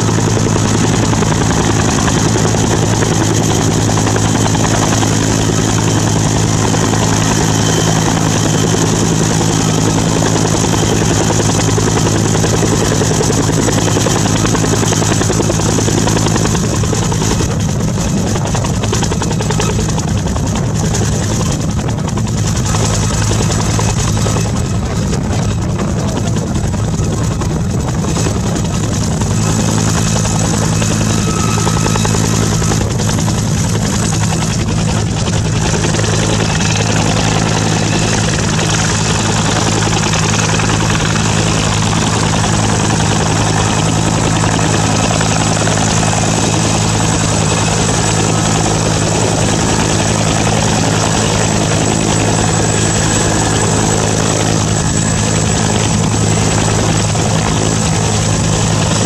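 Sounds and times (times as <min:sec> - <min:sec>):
helicopter rotor and turbine noise: 0:00.0 - 0:59.0
thin high whine: 0:29.4 - 0:33.3.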